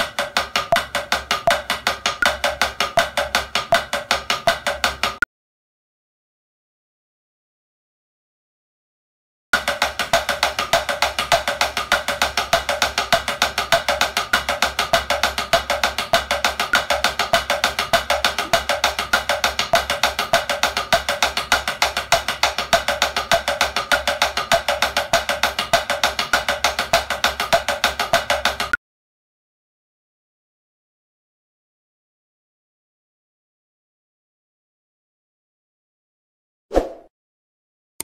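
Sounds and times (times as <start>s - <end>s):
drumsticks tapping practice pad: 0.0s - 5.3s, 9.6s - 28.8s.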